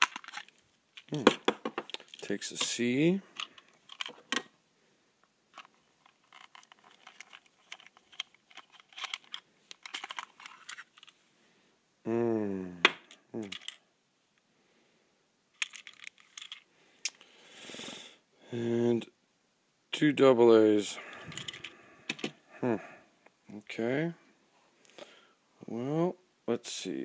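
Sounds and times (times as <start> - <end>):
plastic toy clicks and knocks: 0.0 - 2.7, 5.6 - 11.1, 12.9 - 13.8
man's voice murmuring: 12.1 - 13.6, 18.5 - 19.1, 22.5 - 24.2.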